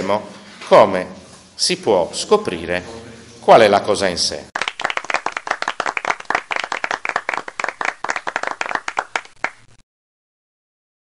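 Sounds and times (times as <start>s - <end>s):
students applauding: 4.6s - 9.8s.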